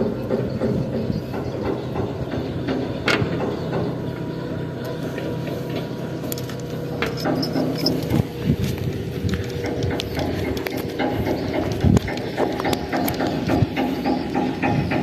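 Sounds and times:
low engine drone: 0.0s - 15.0s
knocks and clicks: 9.4s - 15.0s.

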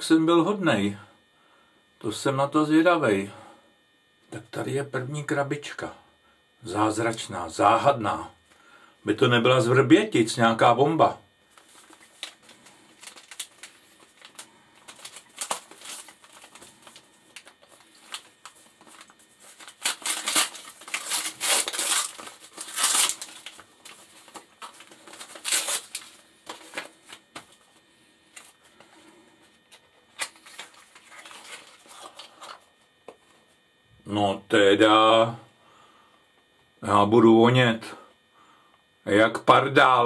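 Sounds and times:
wrapping paper crinkling and tearing: 11.5s - 27.7s, 29.7s - 32.7s.

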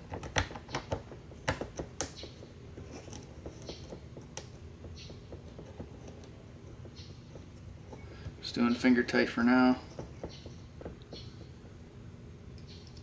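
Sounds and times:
faint scraping and ticking: 2.7s - 11.8s.

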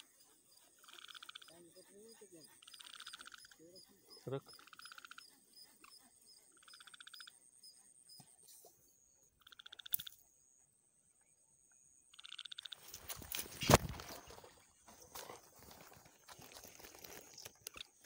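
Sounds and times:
faint high insect tone: 0.0s - 18.0s
frog trilling: 0.8s - 1.6s, 2.4s - 7.4s, 9.4s - 10.2s, 12.1s - 12.9s
handling rustle: 12.8s - 17.8s.

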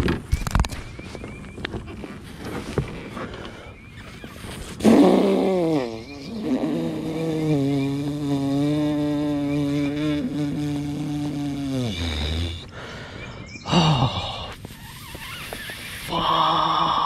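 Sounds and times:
man groaning: 16.1s - 17.0s.

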